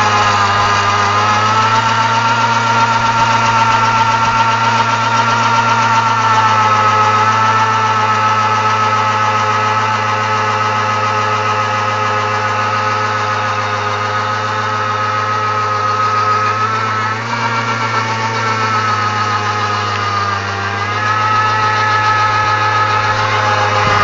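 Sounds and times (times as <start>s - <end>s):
two-stroke engine revving high: 0.0s - 24.0s
tyre spinning on road: 0.0s - 24.0s.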